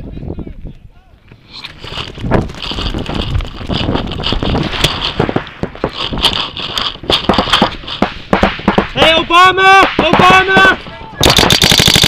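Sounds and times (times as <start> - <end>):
camera rustling and knocking: 1.3 - 8.9.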